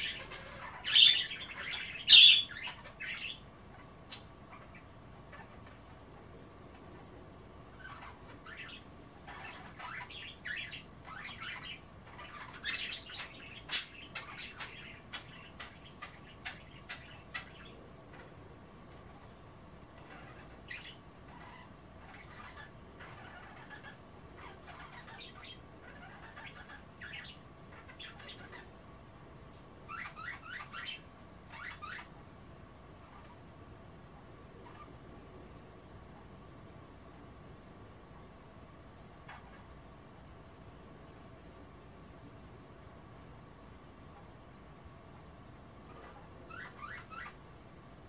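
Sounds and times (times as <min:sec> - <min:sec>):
budgerigars chirping: 0:00.0 - 0:05.9, 0:07.7 - 0:18.3, 0:20.0 - 0:28.7, 0:29.9 - 0:32.1, 0:34.6 - 0:34.9, 0:45.9 - 0:47.4.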